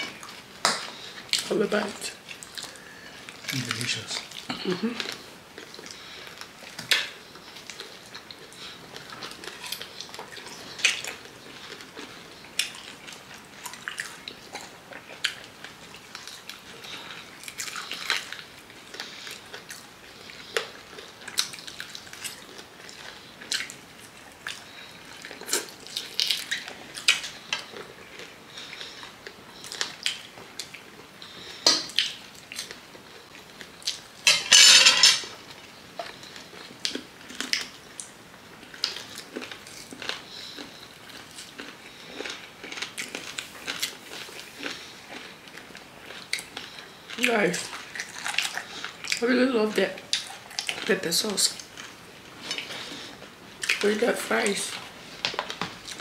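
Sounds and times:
people chewing and smacking: 0.0s - 56.0s
forks clicking on plates: 34.3s - 35.3s.

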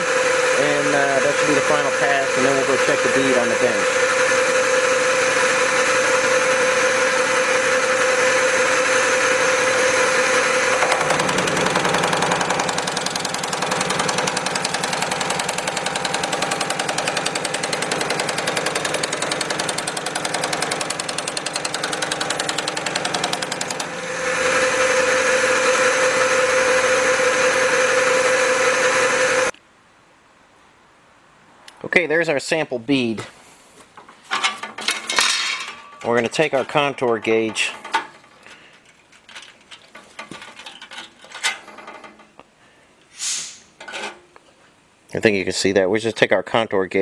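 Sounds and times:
sheet-metal machine stroking: 0.0s - 29.5s.

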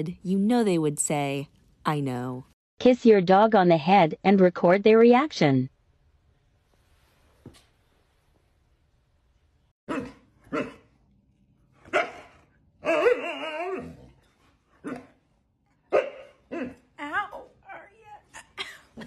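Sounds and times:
dog barking and yelping: 9.9s - 10.9s, 11.9s - 14.2s, 15.9s - 16.9s
dog whining howl: 12.8s - 14.2s.

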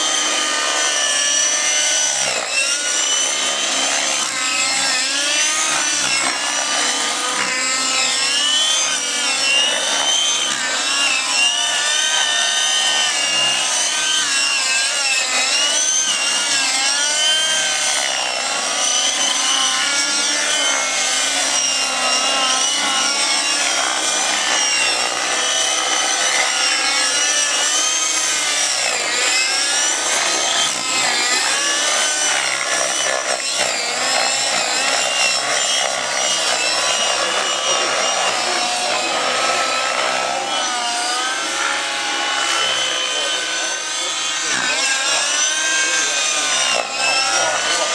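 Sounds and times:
model helicopter engines whining: 0.0s - 47.9s.

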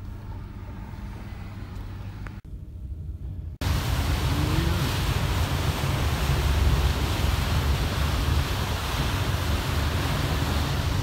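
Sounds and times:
churning propeller wash: 3.6s - 11.0s.

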